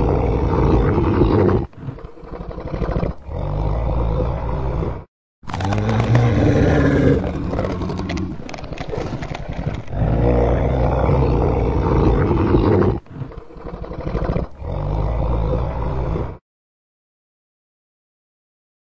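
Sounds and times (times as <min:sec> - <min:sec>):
monster roars: 0:03.2 - 0:08.4, 0:09.9 - 0:13.0.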